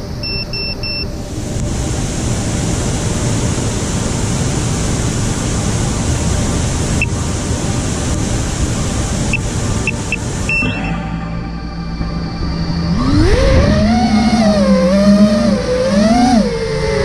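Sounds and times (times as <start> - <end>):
waterfall roar: 1.1 - 17.0
brief high chirps: 9.9 - 11.8.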